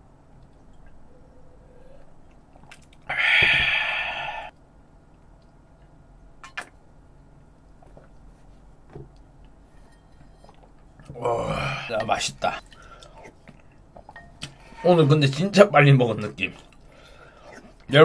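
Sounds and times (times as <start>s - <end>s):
breathy exhale: 3.1s - 4.5s.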